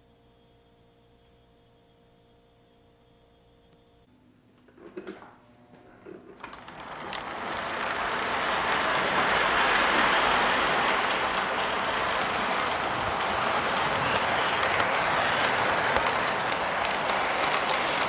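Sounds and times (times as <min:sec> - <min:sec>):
model train rolling on track: 0:06.2 - 0:18.0.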